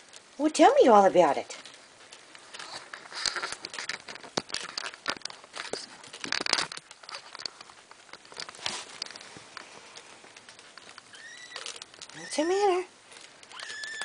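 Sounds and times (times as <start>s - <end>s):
plastic lining crinkling: 0.0s - 14.0s
claws scratching: 1.6s - 14.0s.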